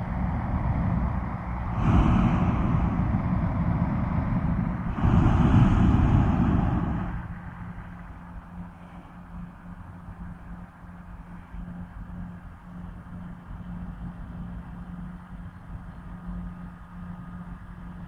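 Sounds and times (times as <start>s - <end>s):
propane burner roaring: 0.0s - 9.0s
propeller engine hum: 0.0s - 18.0s.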